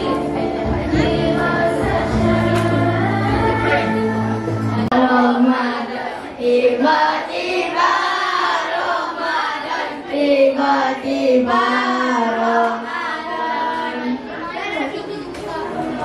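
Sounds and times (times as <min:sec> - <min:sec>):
boys singing into a microphone: 0:00.0 - 0:16.0.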